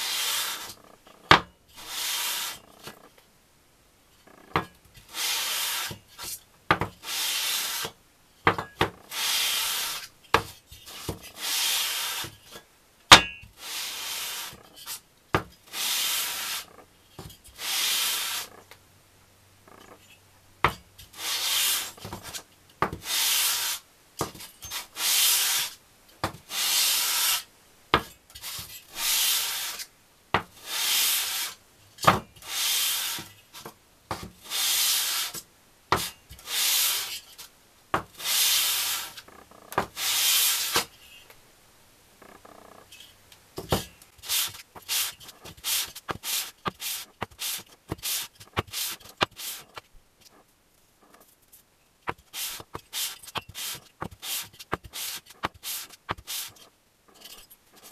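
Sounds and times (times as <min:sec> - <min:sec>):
metal rubbing on abrasive paper: 0:00.0 - 0:00.8, 0:01.8 - 0:02.9, 0:05.1 - 0:06.4, 0:07.0 - 0:07.9, 0:09.1 - 0:10.1, 0:10.7 - 0:12.6, 0:13.6 - 0:15.0, 0:15.7 - 0:16.8, 0:17.5 - 0:18.6, 0:21.1 - 0:22.4, 0:23.0 - 0:23.8, 0:24.4 - 0:25.8, 0:26.5 - 0:27.5, 0:28.4 - 0:29.9, 0:30.6 - 0:31.6, 0:32.4 - 0:33.7, 0:34.4 - 0:35.4, 0:36.0 - 0:37.5, 0:38.2 - 0:39.3, 0:39.9 - 0:41.2, 0:44.2 - 0:49.9, 0:52.1 - 0:57.9.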